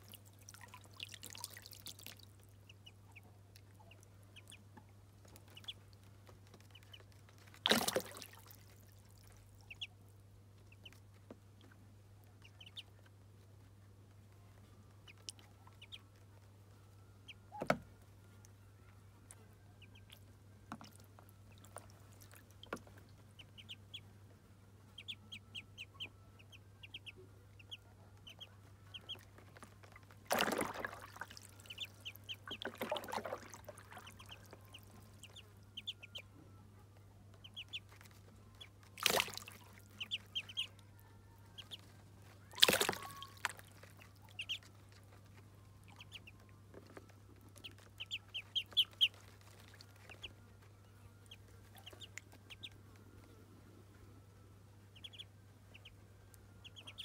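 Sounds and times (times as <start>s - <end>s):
water splashes: 0.0s - 2.4s, 7.5s - 8.9s, 29.0s - 35.4s, 38.9s - 40.6s, 42.5s - 44.6s
ducklings peeping: 0.1s - 14.2s, 14.9s - 53.5s, 54.7s - 57.0s.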